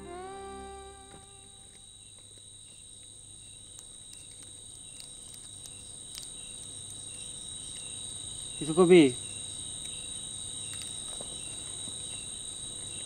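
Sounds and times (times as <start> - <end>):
music: 0.0 - 1.8
crickets chirping: 0.0 - 13.0.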